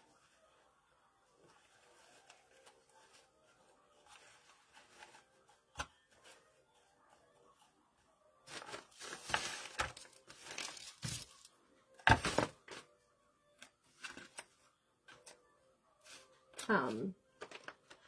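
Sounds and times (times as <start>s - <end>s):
dry leaves and ribbon rustling: 8.5s - 11.5s.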